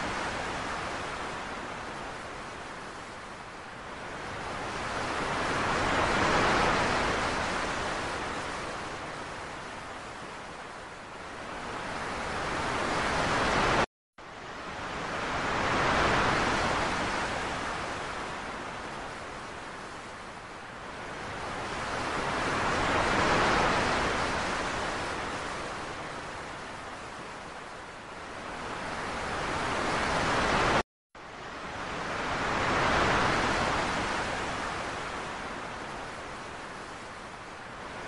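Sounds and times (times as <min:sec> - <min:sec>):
ocean waves breaking: 0:00.0 - 0:38.0.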